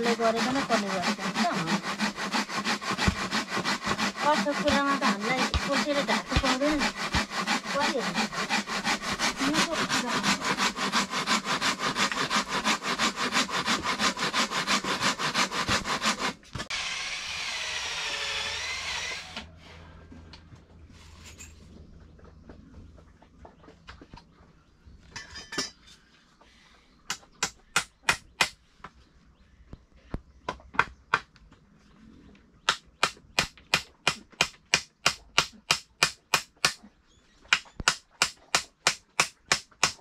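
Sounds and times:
handsaw cutting wood: 0:00.0 - 0:19.7.

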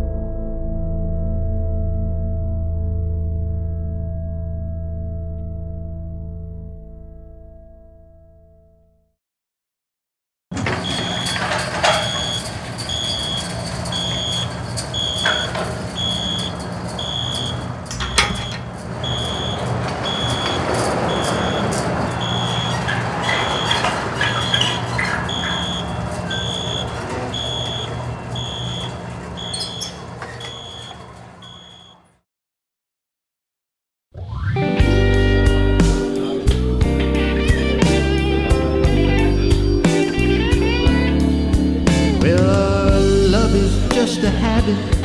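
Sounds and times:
high electronic beeps: 0:10.8 - 0:32.0.

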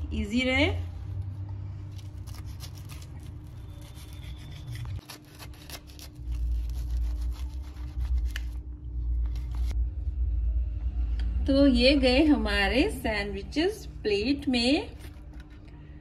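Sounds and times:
knife sawing through toasted bread: 0:02.1 - 0:08.3
low rumble: 0:06.9 - 0:16.0.

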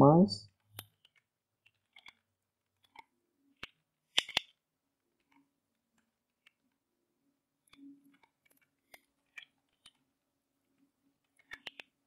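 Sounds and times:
computer keyboard clicks: 0:11.4 - 0:12.0.

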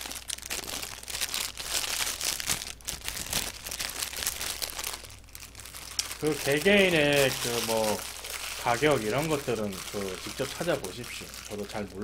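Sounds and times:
paper wrapper crinkling: 0:00.0 - 0:12.0.

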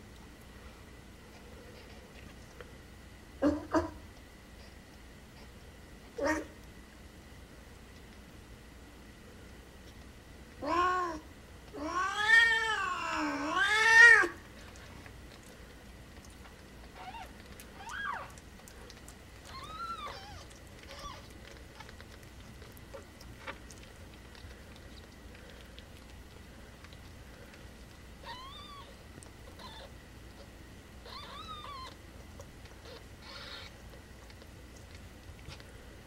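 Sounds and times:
kittens mewing: 0:10.6 - 0:14.9, 0:16.8 - 0:25.6, 0:28.2 - 0:35.6
cat meowing and yowling: 0:11.8 - 0:14.4, 0:17.0 - 0:18.4, 0:19.4 - 0:21.3, 0:31.0 - 0:32.0.

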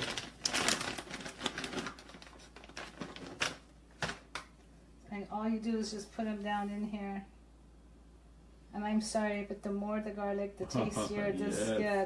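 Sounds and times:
plastic pouch crinkling: 0:00.0 - 0:04.5.

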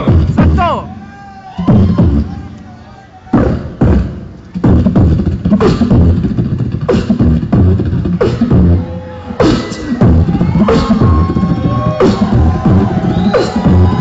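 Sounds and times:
beatboxing through speakers: 0:00.0 - 0:00.9, 0:03.3 - 0:14.0.

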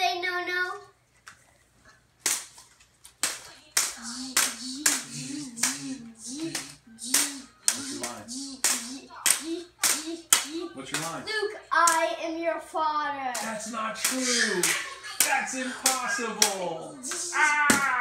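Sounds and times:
toy lightsabers clashing: 0:03.2 - 0:11.2, 0:11.8 - 0:12.2, 0:13.3 - 0:18.0.

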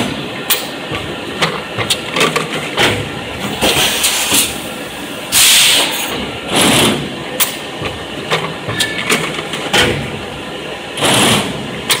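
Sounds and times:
pneumatic clacks: 0:00.0 - 0:04.7, 0:05.3 - 0:10.2, 0:10.9 - 0:12.0
steady machine hum: 0:00.0 - 0:12.0
compressed air hissing: 0:03.8 - 0:06.0.

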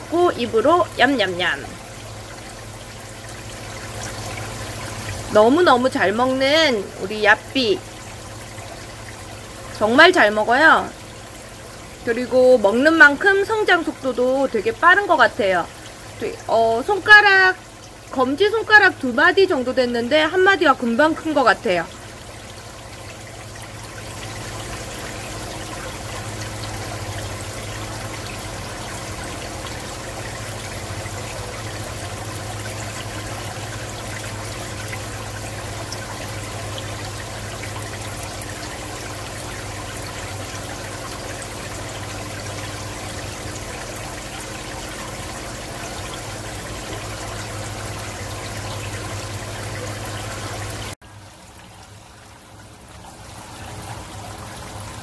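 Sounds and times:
water trickling: 0:00.0 - 0:55.0.

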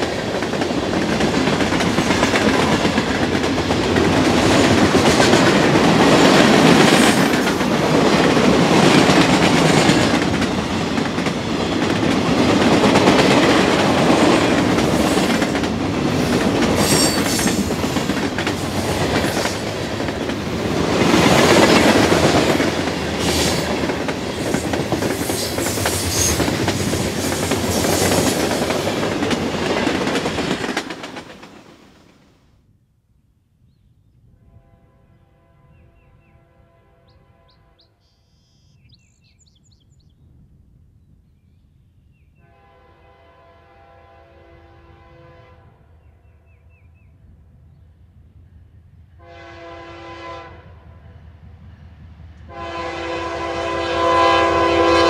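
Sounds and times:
train wheels on rails: 0:00.0 - 0:32.2.

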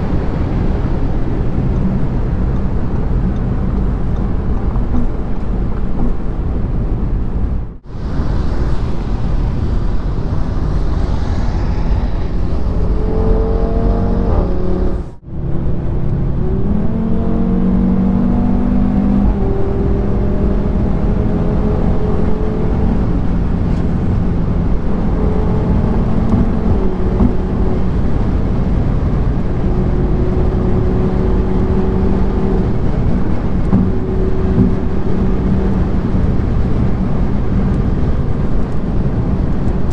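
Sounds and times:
car engine accelerating: 0:00.0 - 0:39.9
wind and road noise: 0:00.0 - 0:39.9.

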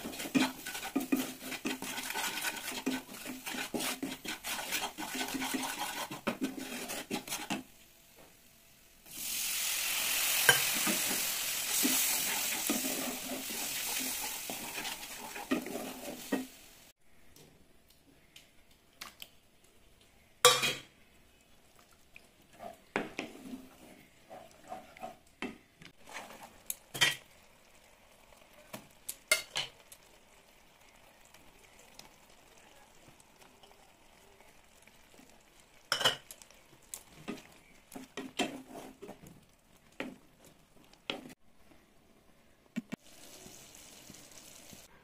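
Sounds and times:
wooden spatula stirring gravy: 0:00.0 - 0:07.7, 0:10.6 - 0:16.5, 0:21.6 - 0:26.7, 0:36.3 - 0:41.4.

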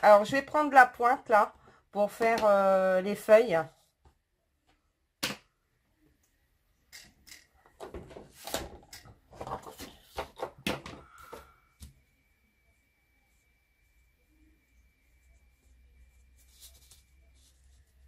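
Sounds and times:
faint high tone: 0:12.0 - 0:18.0.

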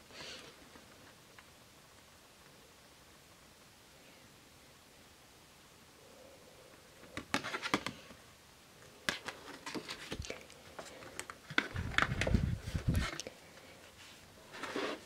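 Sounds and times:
paper rustling and tapping: 0:07.1 - 0:08.2.

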